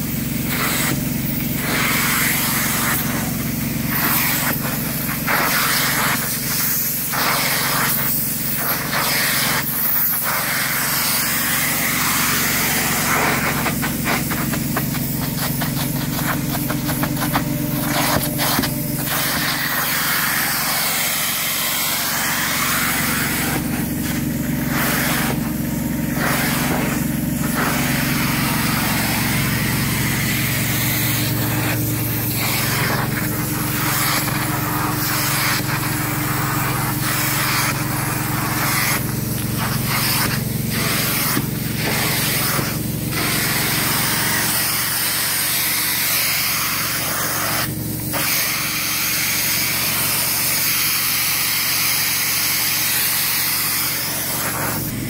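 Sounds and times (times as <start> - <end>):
rush of suction and spray: 0.0 - 55.0
machine drone: 10.7 - 48.1.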